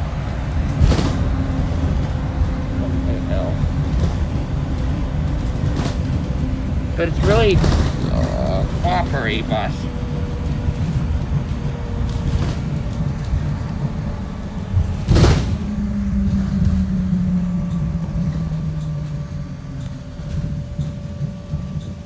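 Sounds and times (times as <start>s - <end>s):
bus engine and road rumble: 0.0s - 22.0s
sharp thump: 15.0s - 15.7s.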